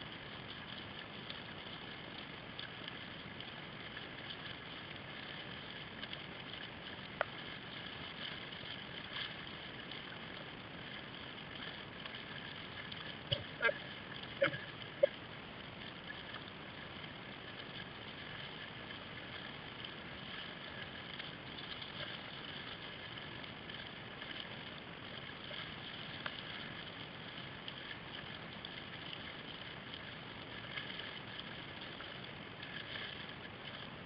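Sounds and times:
paddle splashing water: 0.0s - 34.0s.

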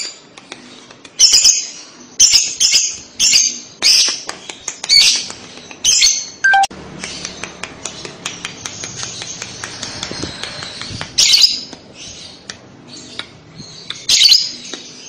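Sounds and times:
brief falling tone: 6.5s - 6.7s.

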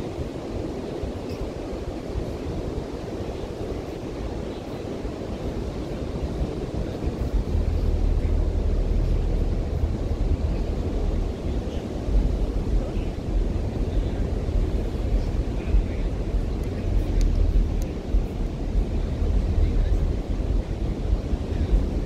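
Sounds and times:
ocean surf on a beach: 0.0s - 22.0s
low rumble: 6.8s - 22.0s.

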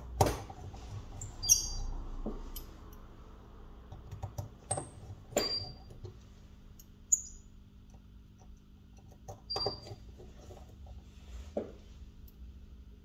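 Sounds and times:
light clicks and taps of tools: 7.8s - 9.5s.

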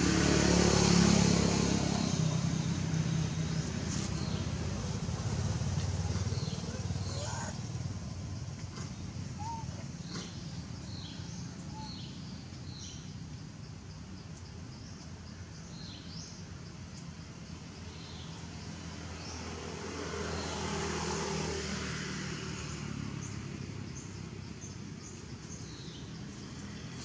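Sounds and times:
vehicle passing: 0.0s - 12.9s, 18.4s - 27.0s
traffic engine hum: 0.0s - 27.0s
bird chirps: 9.0s - 13.3s.

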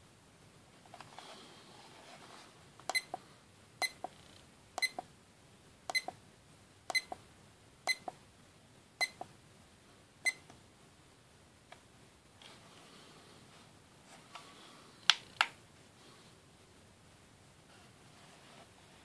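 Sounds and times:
alarm clock high beep: 6.9s - 7.2s.

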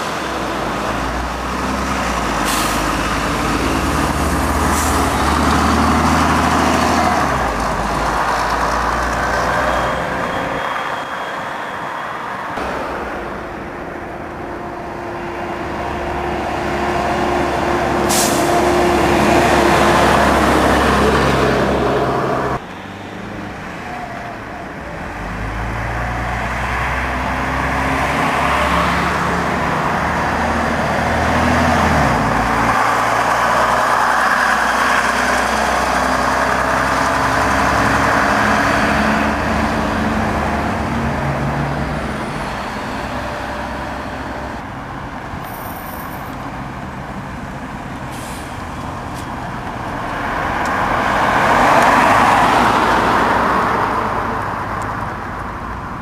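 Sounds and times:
accelerating engine whine: 0.0s - 44.9s
bus engines running: 0.0s - 56.0s
air-brake hiss: 48.0s - 49.3s.

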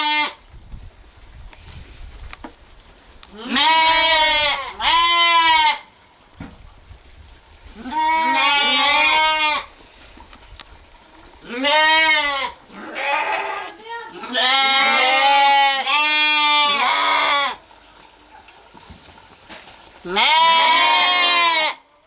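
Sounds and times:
lambs bleating: 0.0s - 0.4s, 3.3s - 5.9s, 7.8s - 9.7s, 11.4s - 17.6s, 20.0s - 21.8s.

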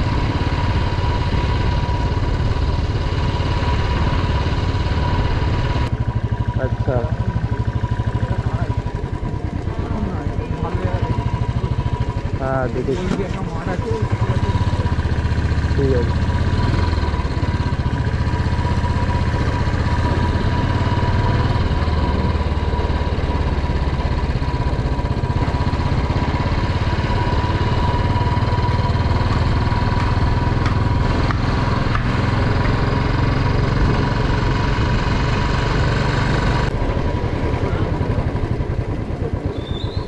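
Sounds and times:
motorcycle engine thumping: 4.8s - 15.2s, 23.7s - 34.4s.

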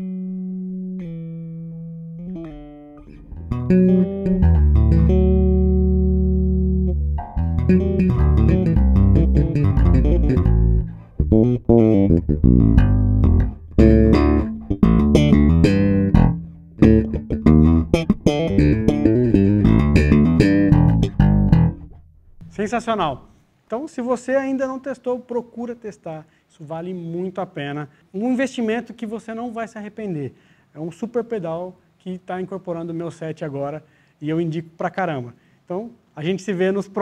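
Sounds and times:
electric bass guitar notes: 0.0s - 23.3s.

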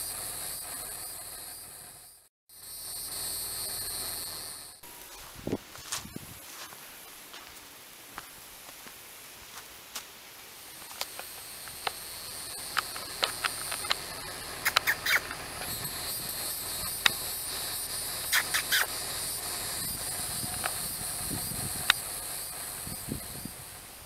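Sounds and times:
high-pitched insect buzzing: 2.5s - 5.3s, 10.8s - 23.8s
short sharp chirps and clicks: 11.8s - 15.4s, 18.2s - 19.0s.

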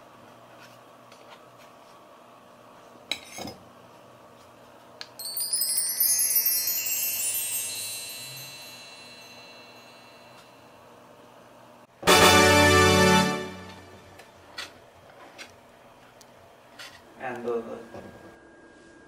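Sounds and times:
descending bar chimes: 5.2s - 10.8s.

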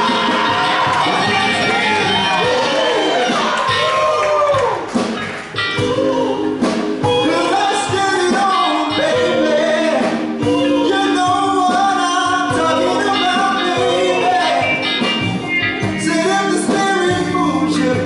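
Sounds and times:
live band playing soul music: 0.0s - 18.0s
man singing lead vocal: 5.7s - 15.2s, 15.8s - 18.0s.

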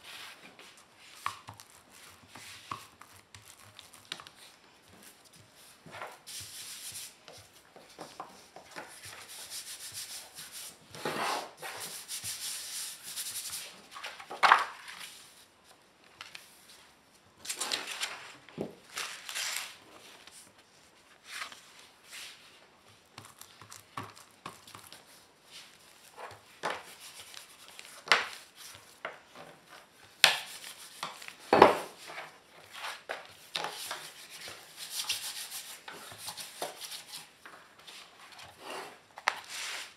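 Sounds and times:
paper sliding and rubbing: 33.7s - 39.9s.

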